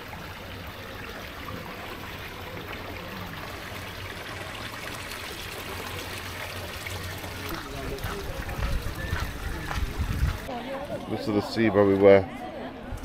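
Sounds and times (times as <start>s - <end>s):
water running and trickling: 0.0s - 10.9s.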